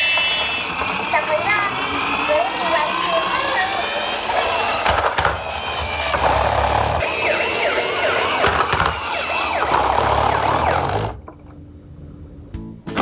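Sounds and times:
toy siren and engine effect: 0.0 - 11.1.

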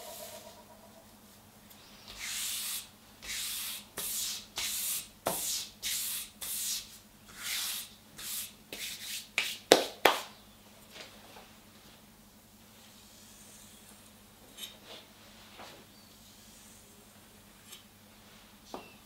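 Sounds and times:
sharp scrapes on wood: 2.1 - 9.6.

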